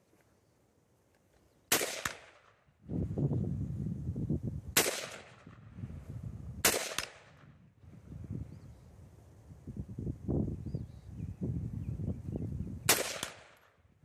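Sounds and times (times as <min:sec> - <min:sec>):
rifle shots: 0:01.7 - 0:02.6, 0:04.8 - 0:05.6, 0:06.6 - 0:07.5, 0:12.9 - 0:13.8.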